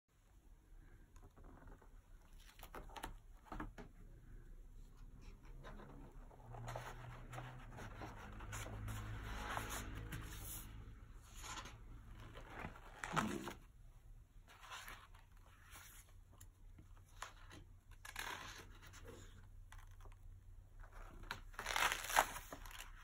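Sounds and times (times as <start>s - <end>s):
paper pages rustling: 5.4s - 13.7s, 14.5s - 20.2s, 20.8s - 23.0s
page swishing: 6.4s - 13.6s.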